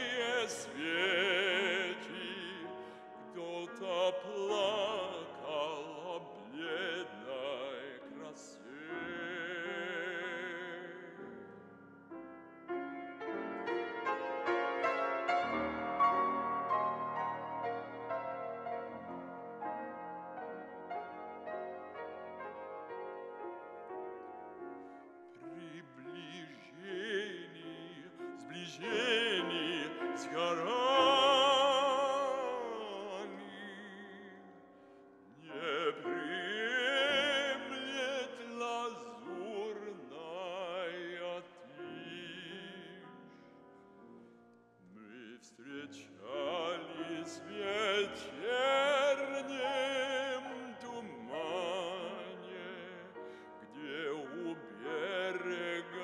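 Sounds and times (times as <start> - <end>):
classical singer with vibrato: 0.0 - 11.6, 25.3 - 43.6, 44.8 - 56.0
piano accompaniment: 0.0 - 56.0.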